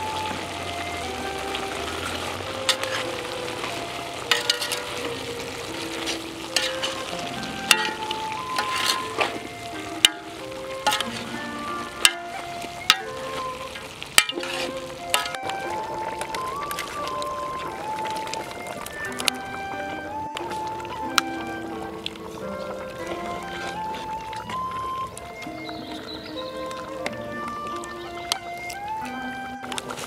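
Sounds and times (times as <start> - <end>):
vegetables sizzling: 0.0 - 30.0
metal spatula scraping pot: 2.0 - 17.5.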